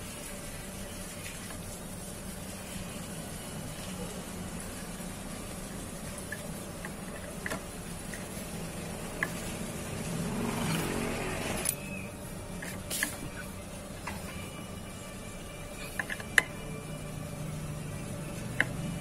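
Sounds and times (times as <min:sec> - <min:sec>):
steady hum: 0:00.0 - 0:19.0
passing vehicle: 0:08.7 - 0:12.4.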